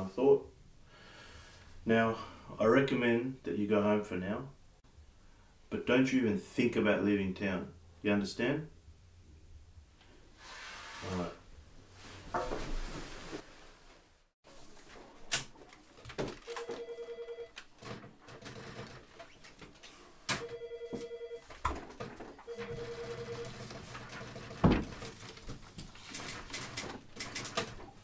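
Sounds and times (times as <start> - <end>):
telephone ringing: 16.4 - 17.6, 20.3 - 21.6, 22.4 - 23.8.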